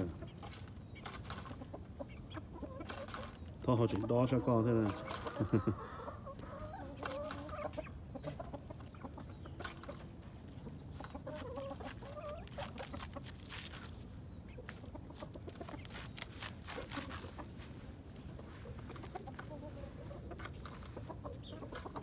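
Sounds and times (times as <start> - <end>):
chickens clucking: 0.0 - 22.0
rooster scratching in dirt: 11.1 - 14.1, 14.7 - 21.0.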